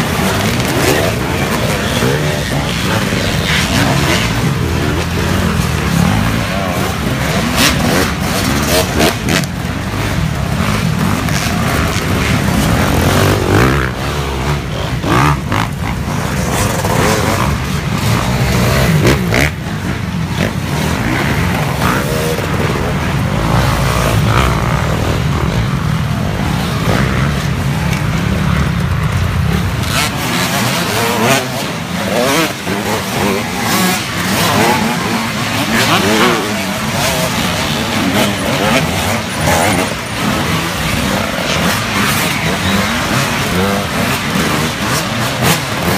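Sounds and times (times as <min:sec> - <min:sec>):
dirt bikes revving past: 0:00.0 - 0:45.9.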